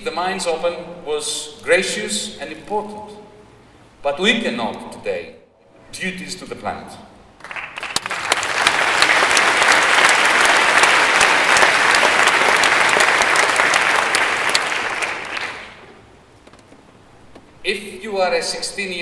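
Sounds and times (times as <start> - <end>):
audience applauding: 7.4 - 15.9.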